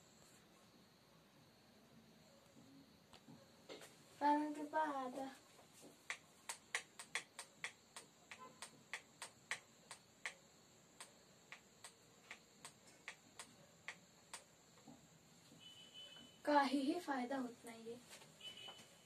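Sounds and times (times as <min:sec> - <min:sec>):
light sharp clicks: 0:06.1 - 0:10.4.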